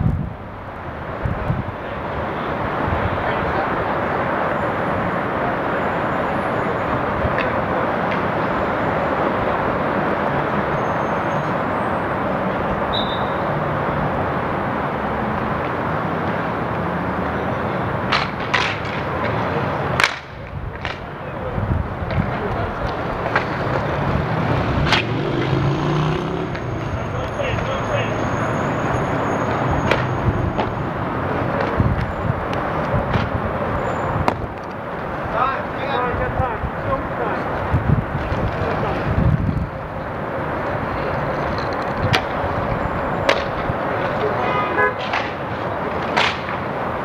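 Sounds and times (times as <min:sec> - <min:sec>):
city traffic hum: 0:00.0 - 0:47.0
steady rush of noise: 0:00.0 - 0:47.0
hockey sticks clacking on asphalt: 0:06.9 - 0:08.5, 0:15.3 - 0:17.4, 0:18.0 - 0:28.4, 0:29.4 - 0:47.0.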